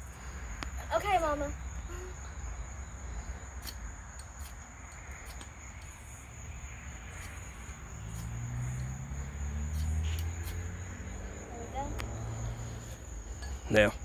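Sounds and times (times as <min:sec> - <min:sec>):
high-pitched insect chirring: 0:00.8 - 0:14.0.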